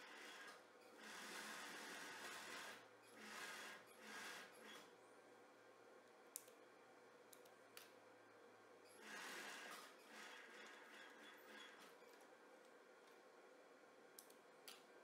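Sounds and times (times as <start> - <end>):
sewing machine motor hum: 0.0 - 4.9, 9.0 - 12.4.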